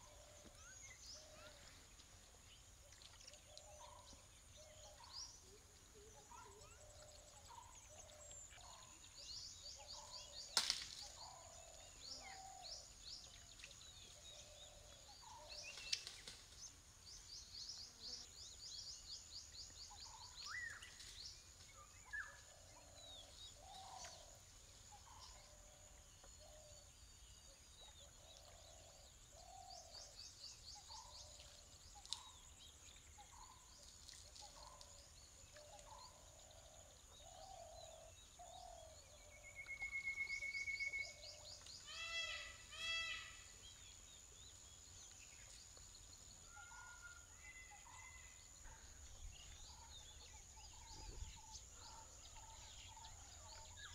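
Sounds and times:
birdsong chirps and trills: 2.5 - 53.9
sharp snaps: 10.6 - 11.0.

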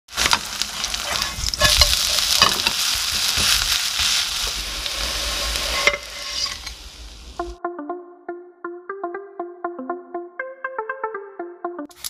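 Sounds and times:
wooden spatula scraping a pan: 0.1 - 7.3
pancake sizzling in hot oil: 0.1 - 7.4.

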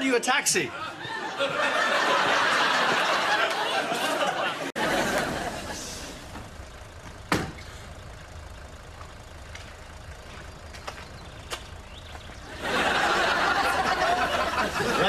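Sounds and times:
audience laughter: 0.6 - 6.4, 12.4 - 15.0
car engine idling: 4.8 - 15.0
sharp thump: 7.2 - 7.8.

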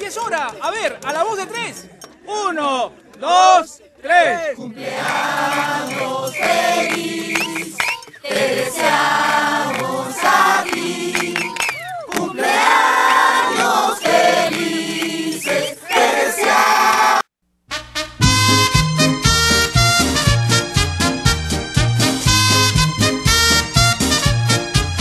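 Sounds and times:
choir singing sustained chords: 4.8 - 11.5.

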